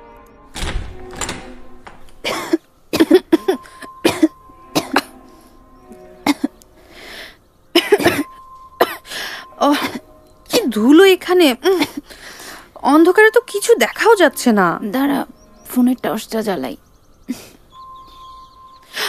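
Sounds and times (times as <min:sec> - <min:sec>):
girls coughing: 0:02.2 - 0:05.3, 0:06.2 - 0:06.6, 0:07.7 - 0:10.7.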